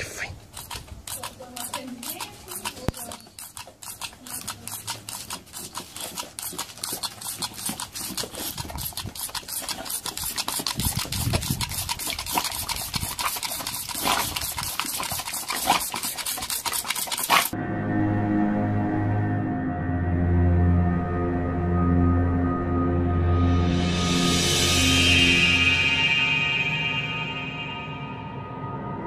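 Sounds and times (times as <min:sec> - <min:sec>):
fast regular clicking: 0:00.5 - 0:17.6
dog snapping at water: 0:00.6 - 0:17.5.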